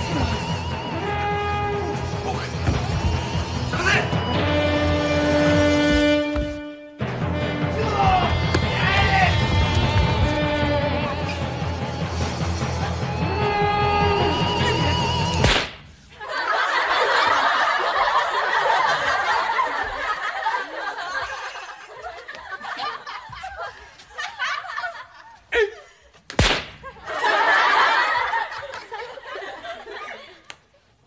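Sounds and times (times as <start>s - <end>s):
music: 0.0s - 15.7s
audience laughter: 10.6s - 13.3s, 16.1s - 25.5s, 26.8s - 30.8s
sharp smacks: 15.4s - 16.0s, 26.3s - 26.9s.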